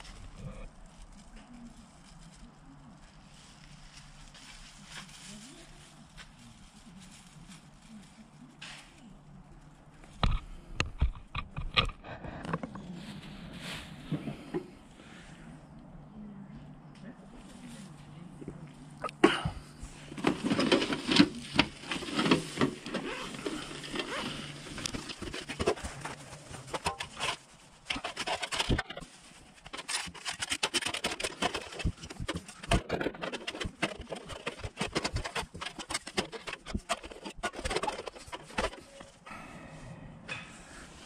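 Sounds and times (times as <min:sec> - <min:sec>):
dry leaves rustling: 0:00.0 - 0:10.0, 0:19.7 - 0:39.2
fabric bag rustling: 0:19.9 - 0:39.2.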